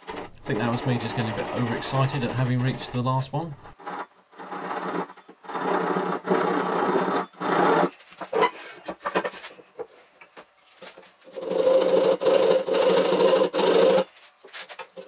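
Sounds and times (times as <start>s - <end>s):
fast hand sawing: 0.0s - 3.2s, 3.8s - 7.9s, 11.3s - 14.2s.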